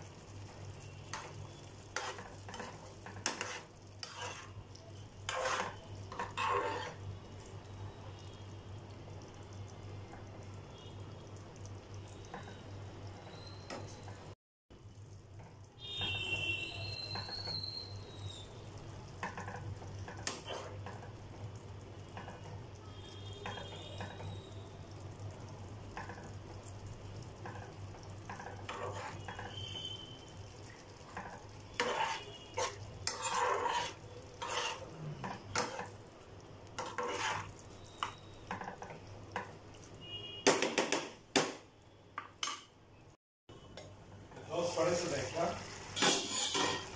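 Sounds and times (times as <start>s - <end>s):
curry simmering and sizzling: 0.0s - 46.9s
spoon stirring: 1.1s - 7.0s, 19.2s - 21.1s, 27.3s - 29.6s, 30.6s - 39.9s
brief high squeal: 13.2s - 14.0s, 16.0s - 18.6s
spoon clinking against pan: 46.0s - 46.9s.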